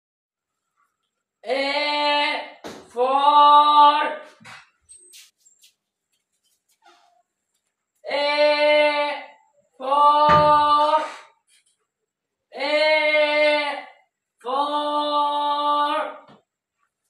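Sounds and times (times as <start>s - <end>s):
high voice singing long vowel: 8.0s - 11.3s, 12.6s - 16.3s.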